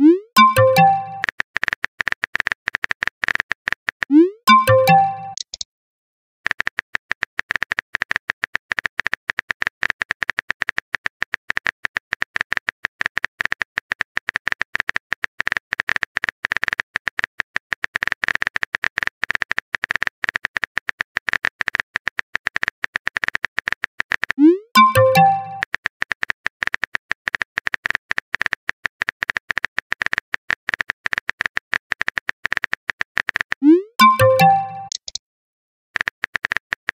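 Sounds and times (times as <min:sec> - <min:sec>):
message sent chime: 0:00.0 - 0:01.2, 0:04.1 - 0:05.4, 0:24.4 - 0:25.6, 0:33.6 - 0:34.9
synthetic typing clicks: 0:00.0 - 0:05.7, 0:06.4 - 0:35.2, 0:36.0 - 0:36.9.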